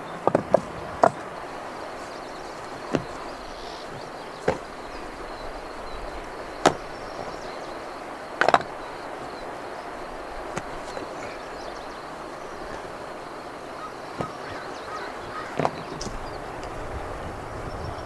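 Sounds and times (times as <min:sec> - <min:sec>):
steady outdoor hiss: 0:00.0 - 0:18.0
firewood knocking: 0:00.2 - 0:05.6, 0:06.2 - 0:07.6, 0:08.4 - 0:08.8, 0:10.5 - 0:11.4, 0:14.2 - 0:14.6.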